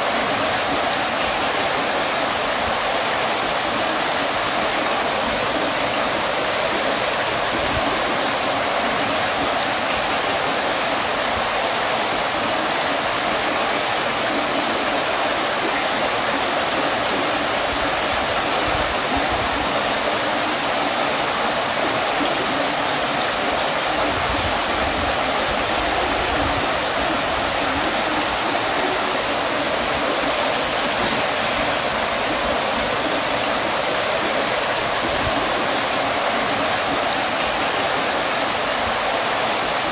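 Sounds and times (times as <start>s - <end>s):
water fountain splashing: 0.0s - 39.9s
short high-pitched sound: 30.5s - 31.1s.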